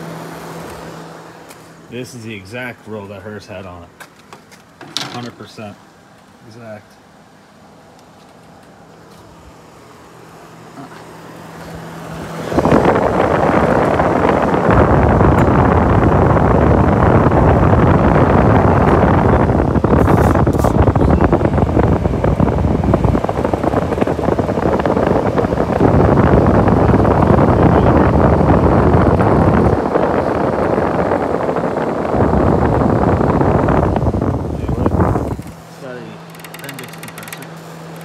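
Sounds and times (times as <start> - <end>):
air conditioner fan rushing air: 0.0 - 38.0
wind rumble on microphone: 12.0 - 35.6.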